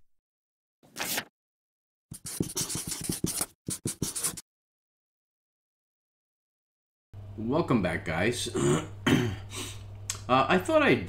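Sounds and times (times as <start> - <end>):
marker writing on paper: 2.1 - 4.4.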